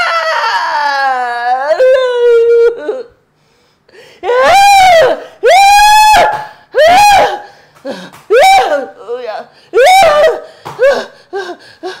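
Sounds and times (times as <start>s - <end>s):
woman screaming: 0.0s - 2.9s, 4.2s - 7.5s, 8.3s - 9.1s, 9.8s - 11.1s.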